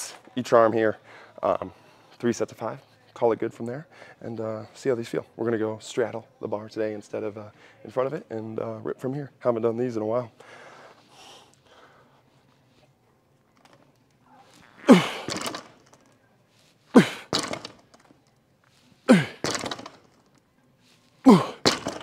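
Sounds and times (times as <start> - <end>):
barbell thudding on floor: 17.0 - 17.8, 19.1 - 20.0, 21.3 - 22.0.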